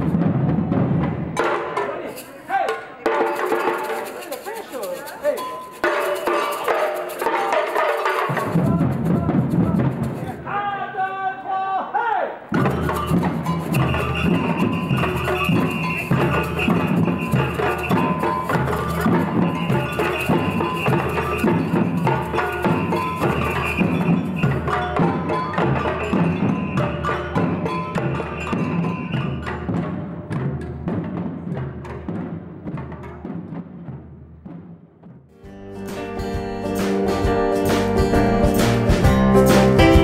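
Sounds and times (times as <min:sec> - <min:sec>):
samba percussion group drumming: 0:00.0 - 0:10.4, 0:12.5 - 0:35.4, 0:36.0 - 0:40.0
high ringing tone: 0:12.7 - 0:29.4.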